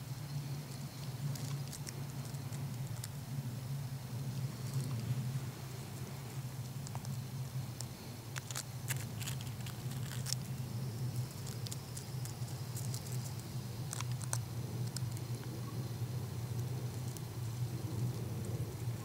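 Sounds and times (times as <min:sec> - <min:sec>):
low hum: 0:00.0 - 0:19.0
bird pecking crusty snow: 0:04.3 - 0:15.3.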